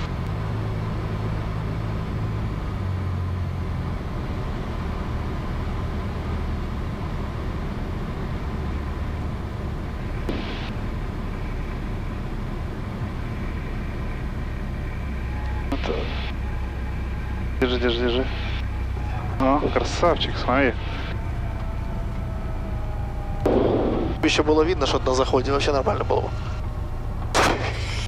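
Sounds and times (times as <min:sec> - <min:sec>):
aircraft engine droning: 0:00.0 - 0:28.0.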